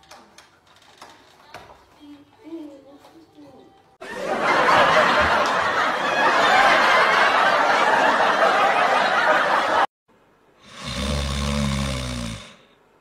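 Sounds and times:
crowd laughing: 4.0 - 9.9
dog snoring: 10.6 - 12.7.

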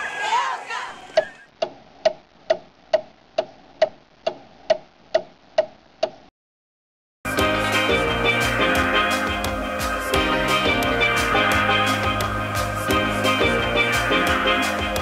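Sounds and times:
clock ticking: 1.2 - 6.3
music: 7.3 - 15.0.

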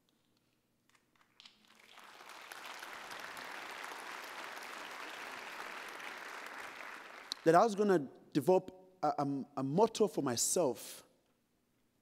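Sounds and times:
audience applause: 1.6 - 7.4.

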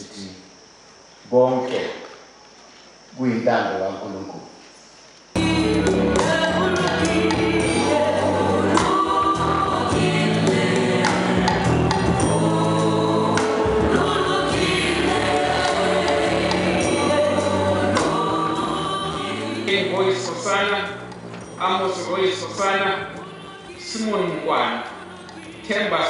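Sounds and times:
woman singing a hymn: 5.4 - 21.0, 21.6 - 26.0
choir singing: 5.4 - 26.0
low musical accompaniment: 5.4 - 26.0.

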